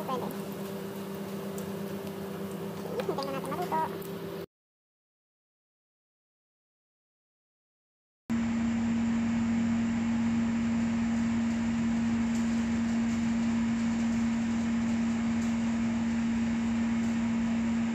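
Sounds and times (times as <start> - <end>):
machine hum with hiss: 0.0 - 4.5, 8.3 - 17.9.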